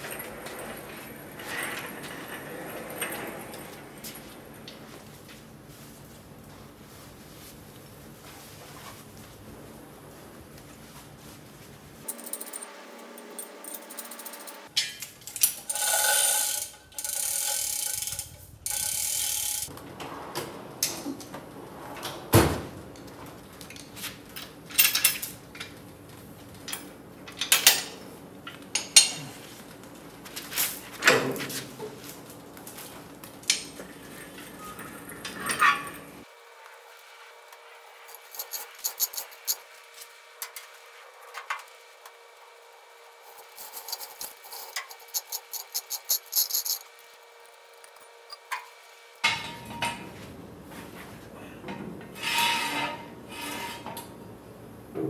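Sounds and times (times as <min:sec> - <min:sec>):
hoist chain rattling: 0:13.7 - 0:19.7, 0:38.1 - 0:39.6, 0:43.3 - 0:47.0
metal clanks and knocks: 0:49.2 - 0:50.3.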